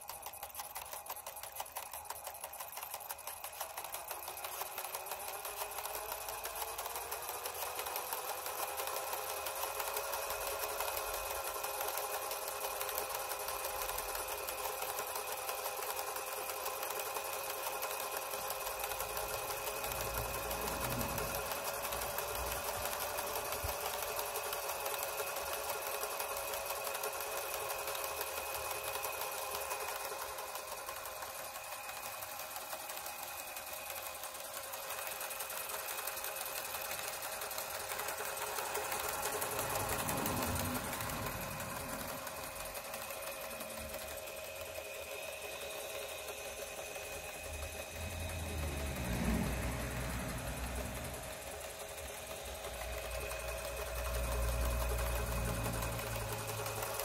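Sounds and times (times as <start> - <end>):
fast mechanical rattle: 0.0 - 57.0
electric motor whine: 0.2 - 57.0.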